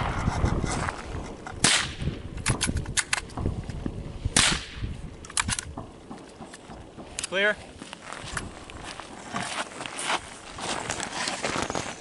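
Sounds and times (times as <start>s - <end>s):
rifle shots: 1.6s - 2.7s, 4.4s - 4.8s
sharp clicks: 1.6s - 3.8s, 4.4s - 7.4s.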